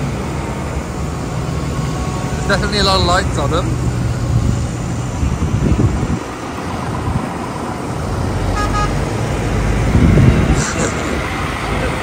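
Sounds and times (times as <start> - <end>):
tractor engines running: 0.0 - 12.0
vehicle horn toot: 8.5 - 9.0.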